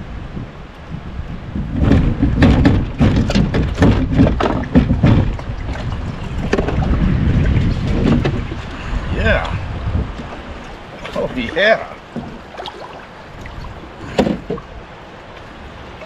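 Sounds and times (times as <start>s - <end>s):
wind rumble on microphone: 0.0s - 16.0s
fish splashing in water: 10.3s - 16.0s.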